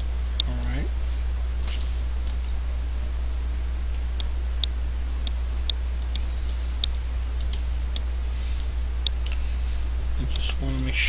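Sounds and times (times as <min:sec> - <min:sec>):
low electrical hum: 0:00.0 - 0:11.0
computer mouse clicking: 0:04.2 - 0:10.9.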